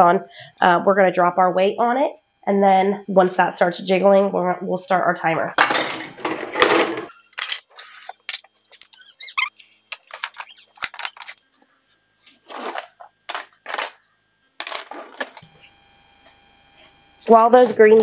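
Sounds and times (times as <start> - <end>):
racks and dishes rattling: 5.6 - 7.2
dishwasher rack squeaks: 8.8 - 11.5.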